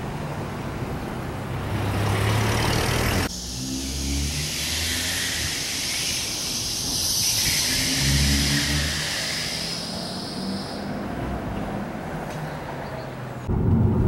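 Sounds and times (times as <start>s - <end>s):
car driving by: 1.4s - 12.5s.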